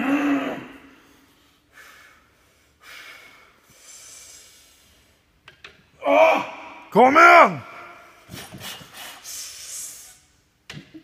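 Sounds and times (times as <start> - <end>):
man taking sharp forceful breaths: 0.9 - 5.4, 8.2 - 10.3.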